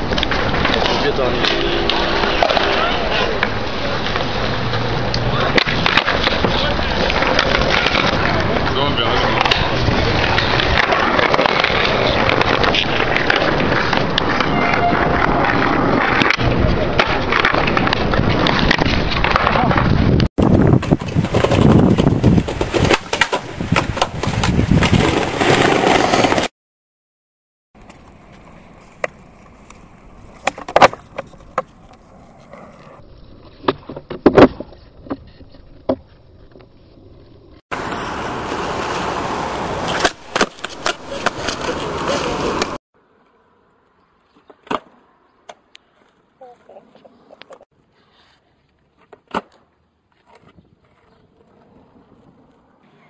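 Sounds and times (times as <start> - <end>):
skateboard wheels rolling on pavement: 0.0 - 26.5, 27.8 - 53.0
skateboard clacks: 0.1 - 19.9, 27.8 - 32.1.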